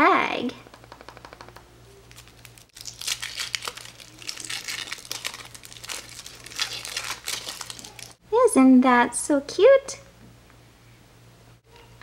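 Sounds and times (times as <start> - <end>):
foil wrapper crinkling: 2.0 - 8.2.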